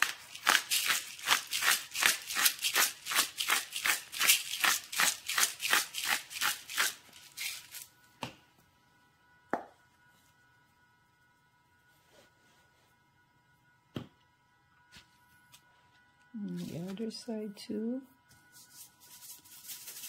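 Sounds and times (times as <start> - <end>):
spice container rattling: 0.0 - 7.9, 19.0 - 20.0.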